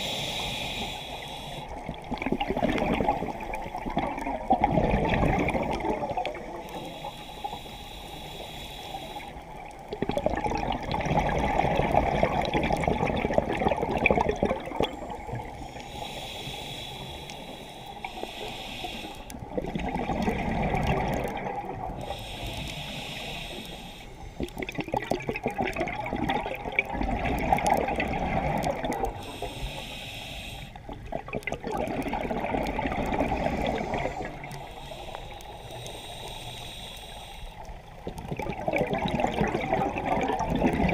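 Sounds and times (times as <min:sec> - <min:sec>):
regulator hissing inhale: 0:00.0 - 0:01.9, 0:06.4 - 0:09.6, 0:15.0 - 0:19.5, 0:21.9 - 0:24.7, 0:29.0 - 0:31.1, 0:33.3 - 0:38.0
exhaust bubbles rushing: 0:02.1 - 0:06.2, 0:31.1 - 0:34.0, 0:38.1 - 0:40.9.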